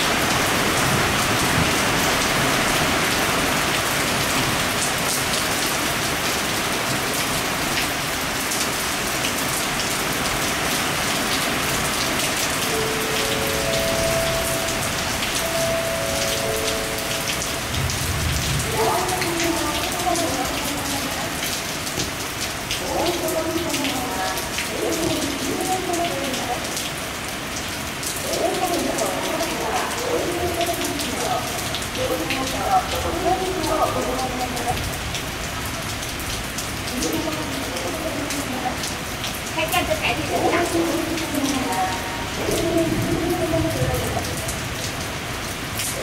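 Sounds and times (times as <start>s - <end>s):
heavy rain: 0.0s - 46.0s
raindrops ticking close by: 0.0s - 46.0s
low thunder rumble: 17.4s - 20.0s.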